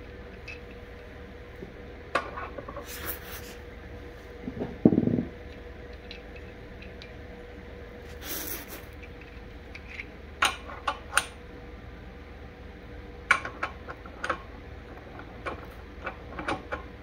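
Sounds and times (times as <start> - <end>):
faint hum: 0.0 - 17.0
short hiss: 8.1 - 8.9.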